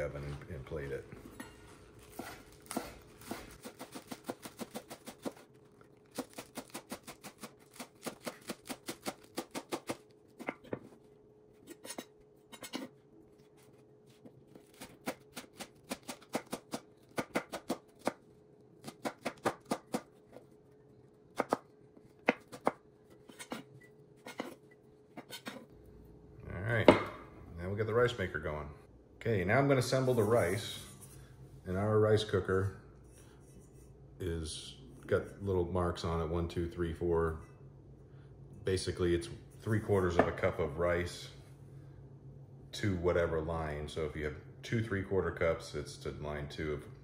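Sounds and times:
knife chopping on wooden board: 14.6 - 18.2, 18.8 - 20.1, 21.4 - 23.6.

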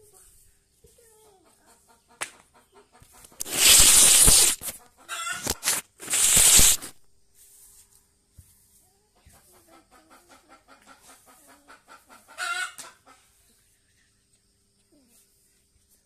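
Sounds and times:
hens clucking: 1.3 - 6.4, 9.2 - 13.5
hand rustling on phone microphone: 3.3 - 7.0.

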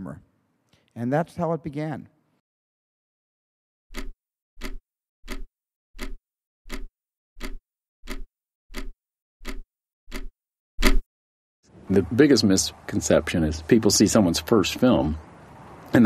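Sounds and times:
clock-like ticks: 3.9 - 10.3.

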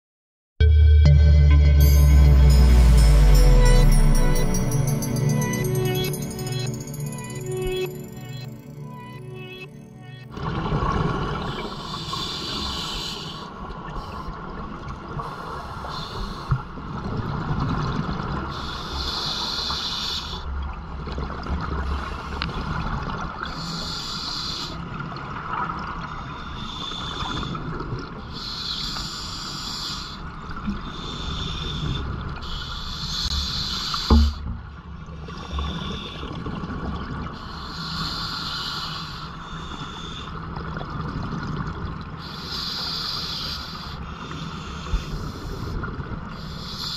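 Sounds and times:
low rumble of moving water: 10.3 - 18.9, 20.4 - 23.8, 24.8 - 28.4, 34.1 - 37.7, 39.2 - 46.7
regulator hiss on inhale: 11.5 - 14.3, 15.2 - 16.6, 18.5 - 20.4, 23.6 - 24.8, 26.4 - 27.6, 28.3 - 30.2, 30.8 - 34.4, 37.4 - 40.4, 42.2 - 46.9
sharp knock: 34.1 - 34.7.

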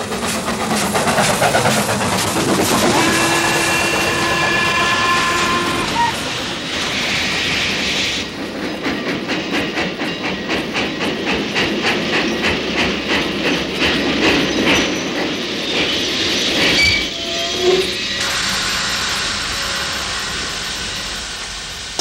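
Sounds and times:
train wheels clickety-clack: 0.0 - 17.1
train brakes squealing: 2.7 - 8.3, 13.5 - 22.0.

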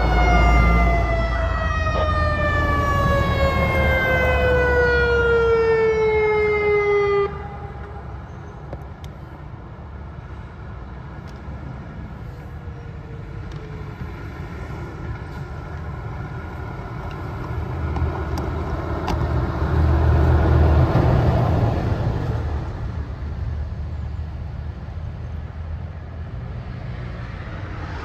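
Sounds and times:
warning siren winding down: 0.0 - 8.1
road traffic rumble: 0.0 - 28.0.

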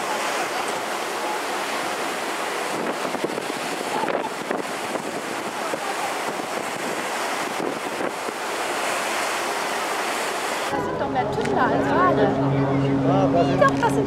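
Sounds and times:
water churning along ship hull: 0.0 - 14.0
wind buffeting microphone: 0.0 - 14.0.

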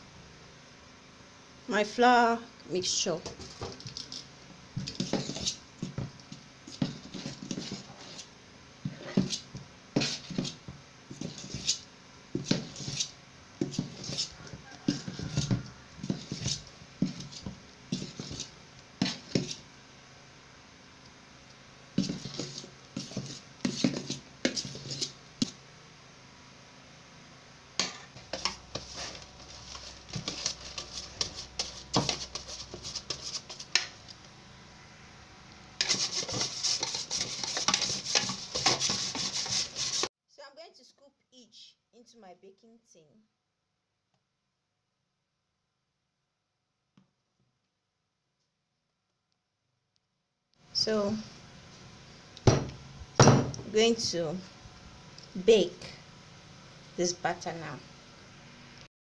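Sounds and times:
metal spoon scraping steel bowl: 35.8 - 40.1.

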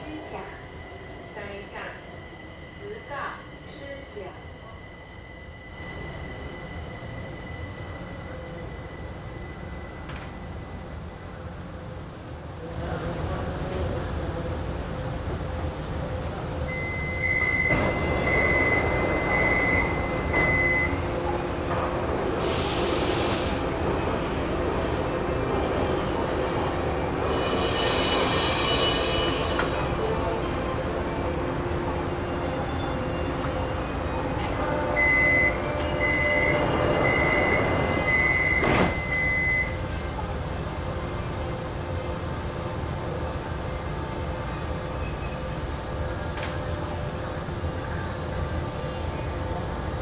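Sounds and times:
low hum of stopped train: 0.0 - 50.0
high-pitched door warning beeps: 16.7 - 21.0, 35.0 - 39.8
sliding doors shutting: 35.7 - 39.2.

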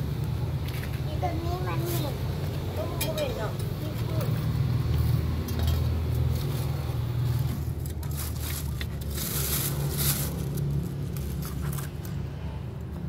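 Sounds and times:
dry leaves rustling and scraping: 1.6 - 12.2
plastic bag rustling: 6.3 - 12.1.

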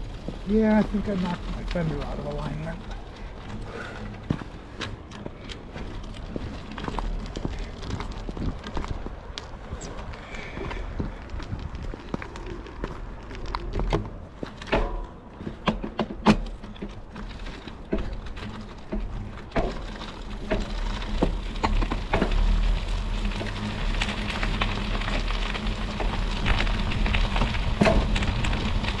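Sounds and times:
studded bicycle tyre rolling on pavement: 0.0 - 29.0
sharp clicks and knocks: 13.6 - 22.6.

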